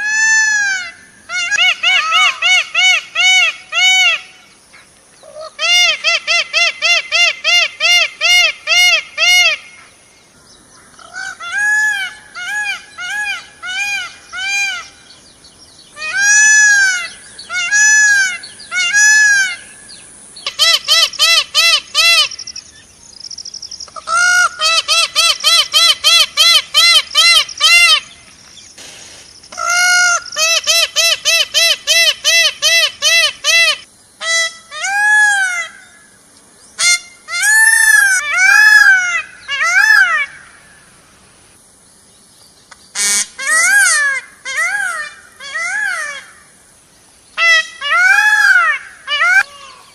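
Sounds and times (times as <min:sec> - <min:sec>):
peacock calling: 0:00.0 - 0:04.6, 0:05.2 - 0:41.0, 0:42.7 - 0:46.6, 0:47.3 - 0:49.9.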